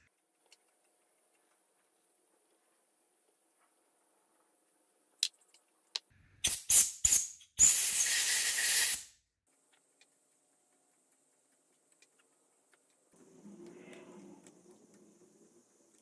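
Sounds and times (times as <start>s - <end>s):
spray nozzle hissing: 6.4s - 9.1s.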